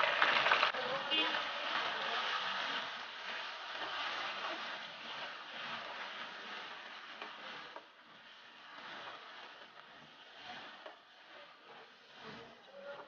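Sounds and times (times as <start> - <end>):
chicken sizzling in hot oil: 0.0 - 7.6.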